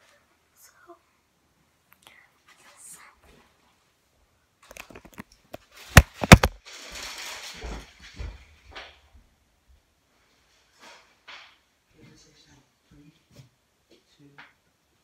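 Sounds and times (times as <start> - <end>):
phone rustling: 4.7 - 6.6.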